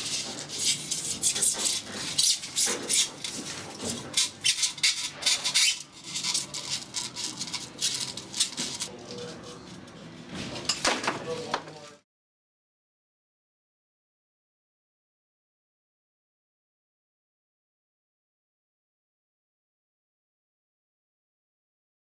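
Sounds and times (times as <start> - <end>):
cable scraping against foam: 0.0 - 9.6.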